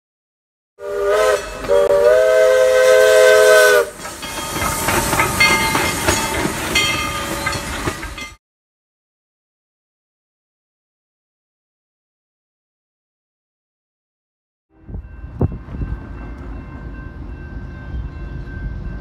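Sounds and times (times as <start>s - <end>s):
steam whistle: 0.8s - 4.1s
locomotive steam hiss: 0.9s - 8.1s
bell ringing: 4.2s - 8.4s.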